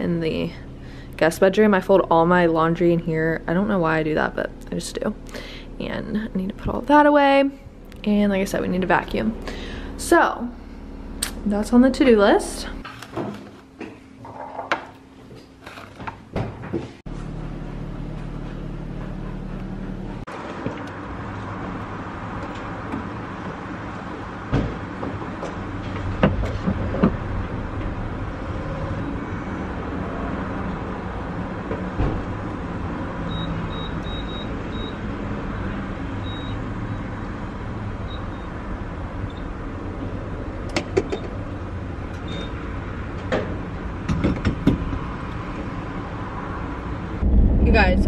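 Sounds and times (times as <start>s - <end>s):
fuel pump hum: 0.0s - 12.8s.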